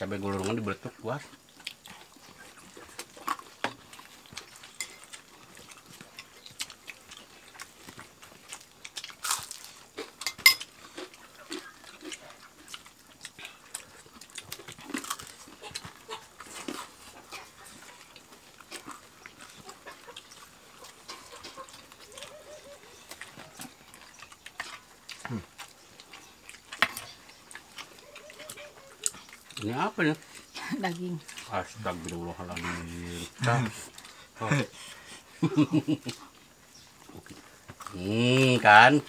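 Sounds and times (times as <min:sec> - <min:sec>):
chewing and lip smacking: 0:01.2 - 0:38.0
spoon clinking against dishes: 0:04.8 - 0:05.2, 0:10.2 - 0:10.7.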